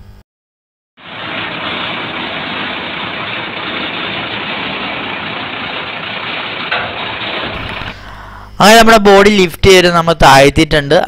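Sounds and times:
diesel truck engine running: 0:01.0 - 0:08.6.

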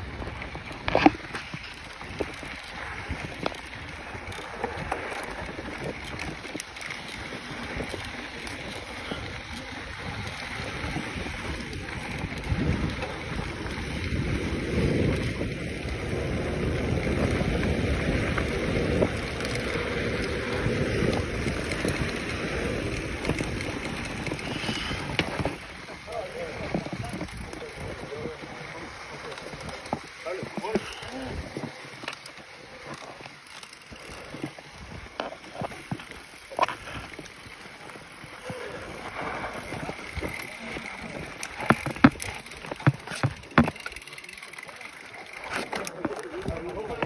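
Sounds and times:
wind buffeting microphone: 0:00.0 - 0:32.0
bike tyres rolling on dirt: 0:00.0 - 0:47.0
faint bike clicks: 0:00.1 - 0:47.0.

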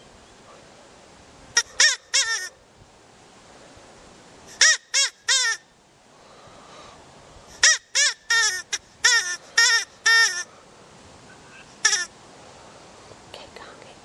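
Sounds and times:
rabbit cries: 0:01.6 - 0:02.6, 0:04.5 - 0:05.6, 0:07.6 - 0:10.5, 0:11.6 - 0:12.1.

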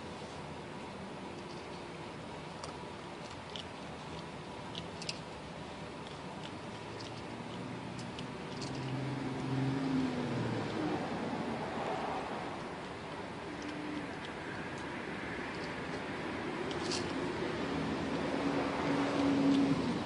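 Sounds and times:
crunching clicks of animal eating: 0:01.4 - 0:09.6, 0:12.5 - 0:17.3.

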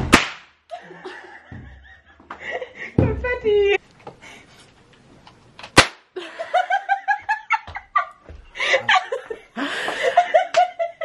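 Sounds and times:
confetti cannon pop: 0:00.0 - 0:00.6, 0:05.8 - 0:06.1
people laughing: 0:00.7 - 0:03.8, 0:06.2 - 0:11.0.

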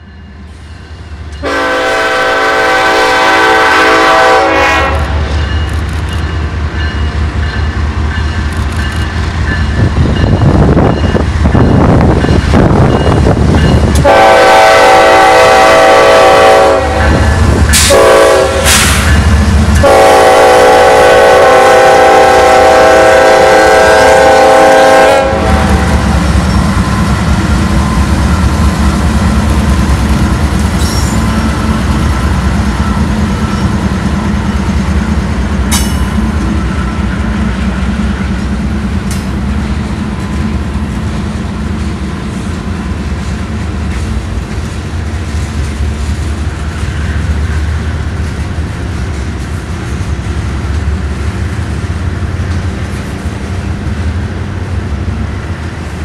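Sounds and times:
diesel locomotive rumble: 0:00.0 - 0:56.0
locomotive horn blasts: 0:01.4 - 0:05.3, 0:14.0 - 0:18.8, 0:19.8 - 0:26.2.

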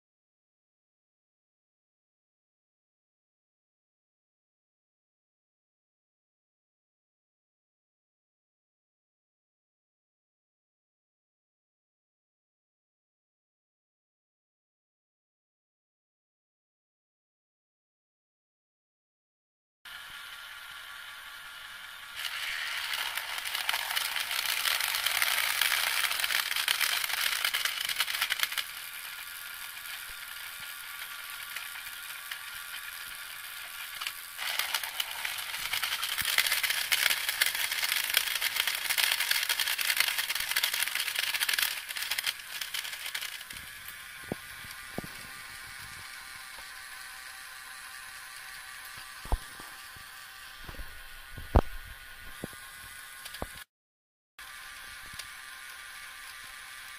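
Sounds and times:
motors whirring through plastic gears: 0:19.9 - 0:53.7, 0:54.4 - 0:56.9
blades crunching cereal: 0:22.2 - 0:45.3.

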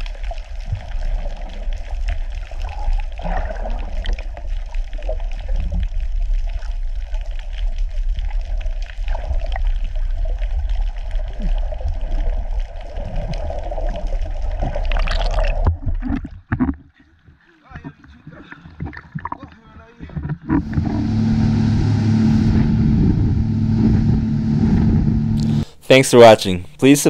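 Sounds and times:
crackles: 0:00.0 - 0:16.7
underwater rumble of moving water: 0:00.0 - 0:16.9, 0:17.8 - 0:25.7
gurgling: 0:14.6 - 0:16.2.

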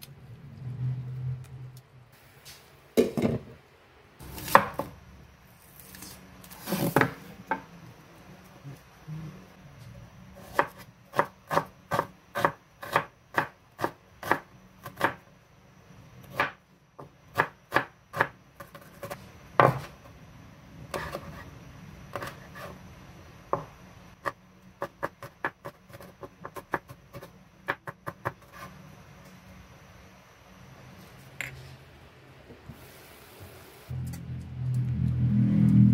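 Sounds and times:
knife chopping on cutting board: 0:10.4 - 0:15.2.

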